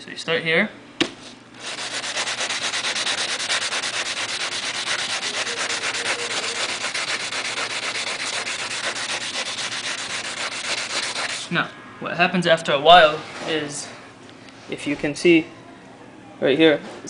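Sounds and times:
sandpaper rubbing on plastic: 1.6 - 11.5.

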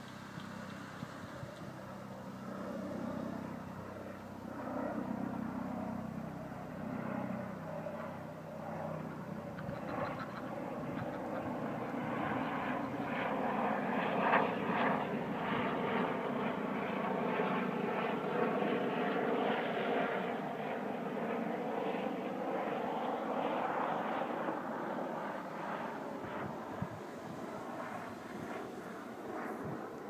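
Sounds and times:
aircraft engine droning overhead: 0.0 - 30.0.

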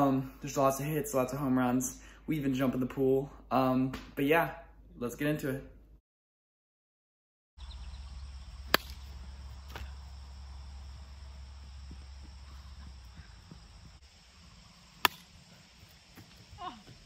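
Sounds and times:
high insect trill: 7.6 - 17.0
plastic bat cracking a ball: 8.7 - 9.9, 15.0 - 15.4.

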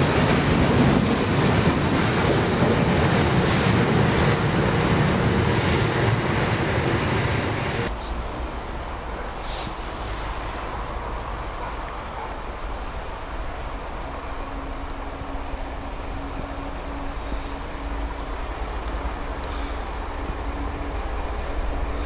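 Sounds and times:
diesel locomotive engine rumbling: 0.0 - 22.0.

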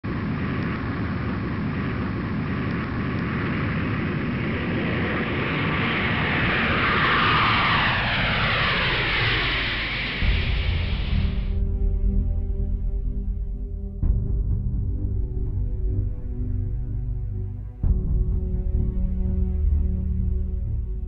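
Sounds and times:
jet engines rushing: 0.0 - 13.2
jet engine whine: 0.0 - 21.0
music with low tones: 10.2 - 21.0.

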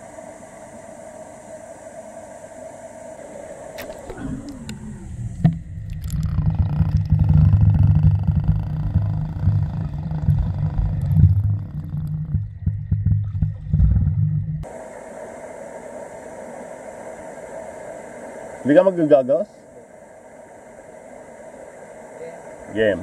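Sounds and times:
muffled underwater rumble: 3.2 - 15.3.

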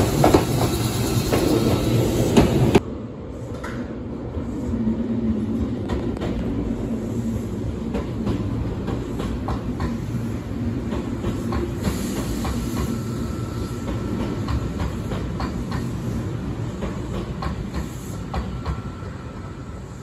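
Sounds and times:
electric train rumbling past: 0.0 - 20.0
train wheels clacking over rail joints: 13.8 - 15.9.

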